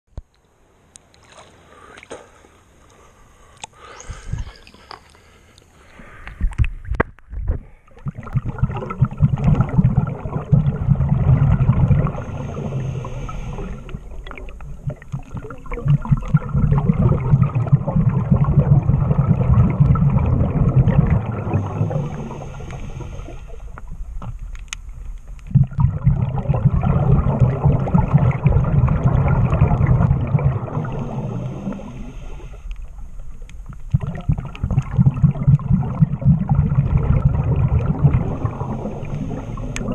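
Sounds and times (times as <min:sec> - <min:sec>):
regulator hissing inhale: 0:01.6 - 0:06.5, 0:12.2 - 0:14.2, 0:21.5 - 0:23.8, 0:30.9 - 0:33.1, 0:38.9 - 0:39.9
exhaled bubbles underwater: 0:06.4 - 0:24.5, 0:25.3 - 0:39.9.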